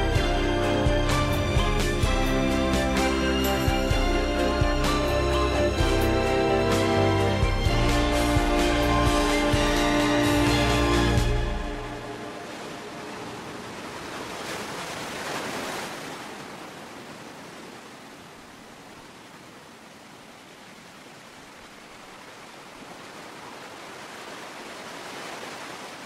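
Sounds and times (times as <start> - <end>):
surf washing on pebble shore: 12.1 - 26.0.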